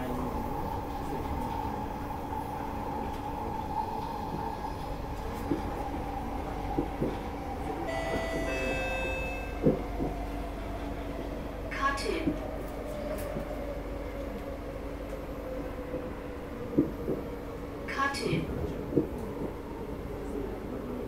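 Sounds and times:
metro train rumbling: 0.0s - 21.0s
track clunks: 7.9s - 10.4s.

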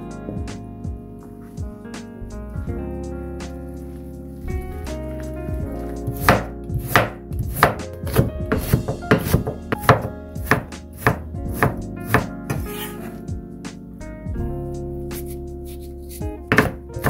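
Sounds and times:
knife chopping on wooden board: 6.1s - 12.6s, 16.1s - 16.8s.

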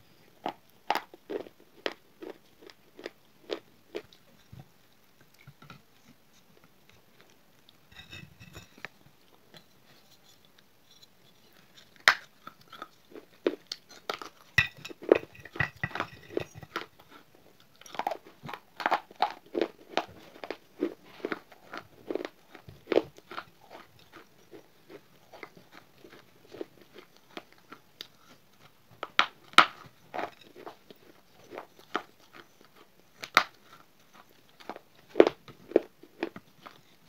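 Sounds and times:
clay pieces crunching in teeth: 11.6s - 20.6s.

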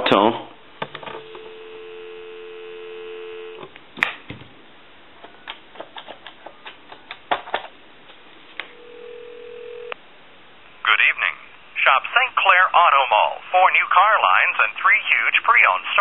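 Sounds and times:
telephone dial tone: 1.0s - 3.6s, 8.6s - 10.0s.

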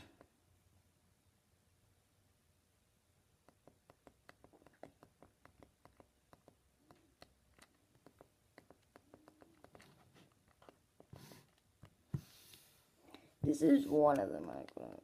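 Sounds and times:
faint clicks and taps: 3.4s - 15.0s.

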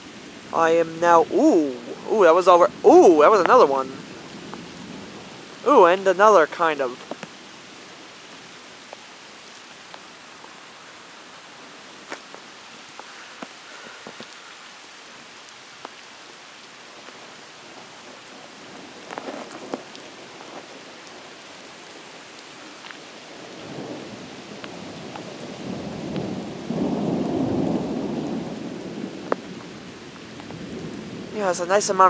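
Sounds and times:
heavy rain: 0.0s - 32.0s
raindrop ticks: 2.2s - 10.6s, 12.0s - 32.0s
thunder rumbling: 23.4s - 32.0s.

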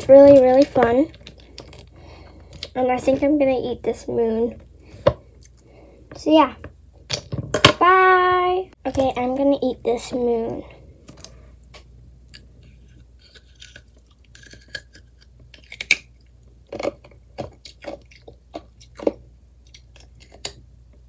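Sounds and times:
person chewing ice: 0.6s - 2.8s, 12.3s - 20.6s.

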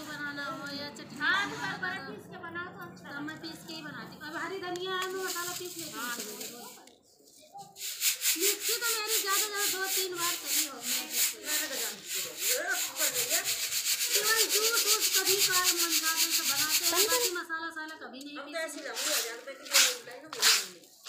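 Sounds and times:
grains scraping in bamboo basket: 5.1s - 6.8s, 7.8s - 17.3s, 18.8s - 20.8s.

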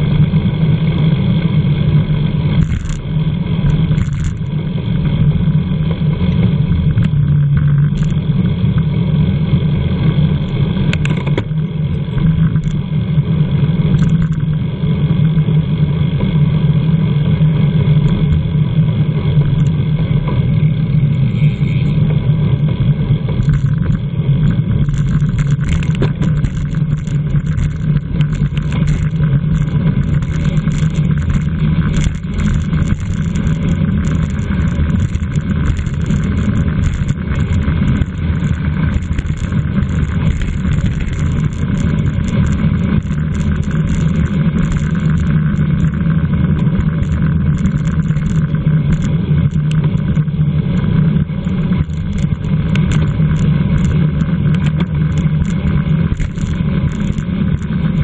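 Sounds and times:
faint ticks: 2.6s - 4.5s, 7.0s - 8.2s, 10.4s - 12.8s, 14.0s - 14.4s, 19.6s - 19.8s, 23.4s - 58.0s
wind rushing over microphone: 17.2s - 58.0s.

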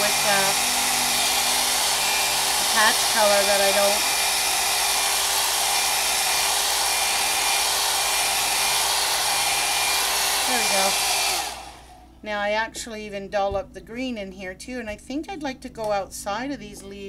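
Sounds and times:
hair dryer blowing: 0.0s - 12.1s.

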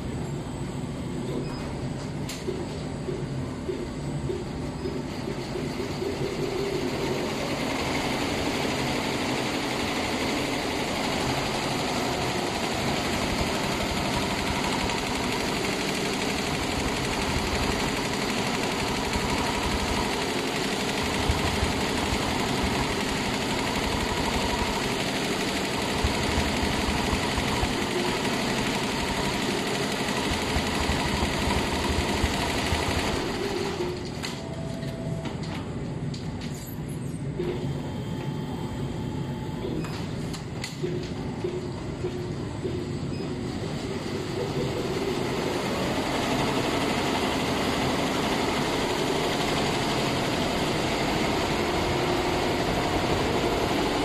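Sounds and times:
quilting machine stitching: 5.5s - 34.0s, 44.1s - 54.0s.

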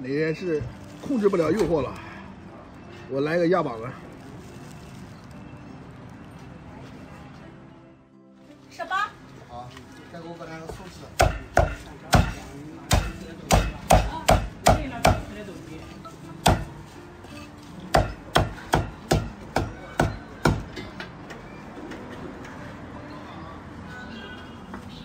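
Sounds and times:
cleaver chopping on wooden block: 11.2s - 15.2s, 17.9s - 20.7s.

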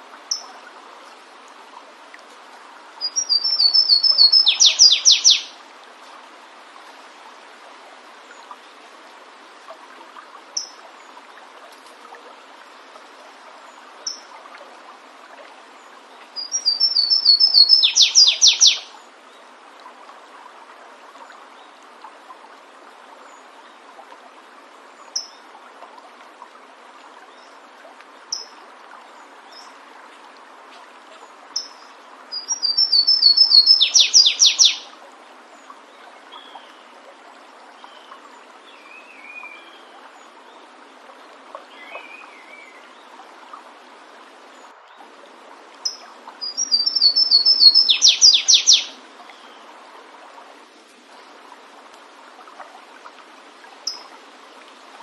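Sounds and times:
stream rushing: 0.0s - 55.0s
bird call notes: 3.0s - 5.5s, 16.4s - 18.8s, 32.4s - 34.8s, 45.9s - 48.9s
warbler song with fast trill: 3.0s - 5.5s, 16.4s - 18.8s, 32.4s - 34.8s, 45.9s - 48.9s.

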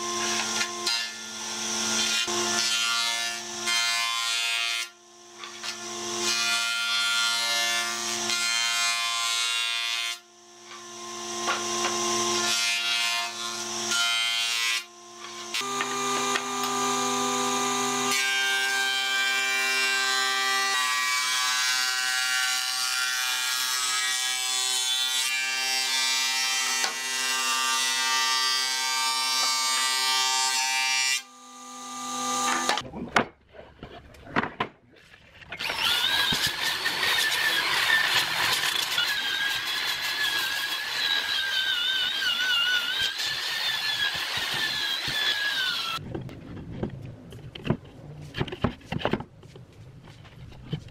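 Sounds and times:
jointer-planer whining: 15.1s - 18.2s, 35.6s - 46.0s
drill spinning wire brush: 35.6s - 46.0s.

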